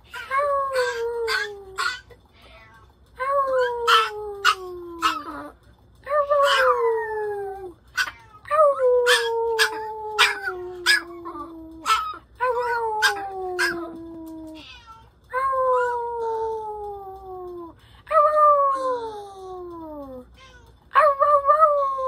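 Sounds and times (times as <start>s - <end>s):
small dog howling: 0.1s - 2.1s, 3.5s - 5.5s, 6.3s - 14.8s
dog yipping: 0.1s - 2.2s, 3.6s - 5.4s, 6.4s - 7.1s, 7.9s - 14.0s.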